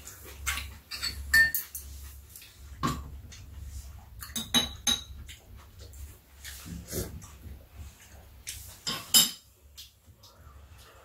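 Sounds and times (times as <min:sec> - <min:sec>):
utensils clinking against bowls: 0:00.4 - 0:02.0, 0:08.8 - 0:09.5.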